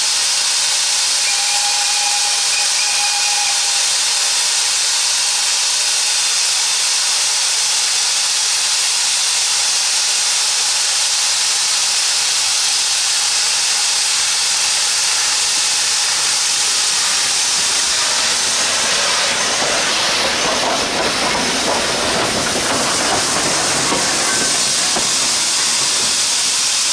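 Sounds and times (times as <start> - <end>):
deep rush of steam: 0.0 - 26.9
steam locomotive hissing: 0.0 - 26.9.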